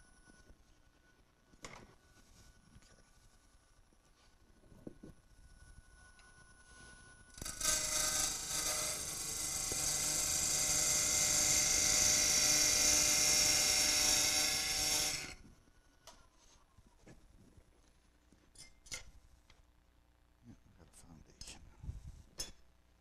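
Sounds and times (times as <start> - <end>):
lathe tool cutting wood: 7.4 - 15.4.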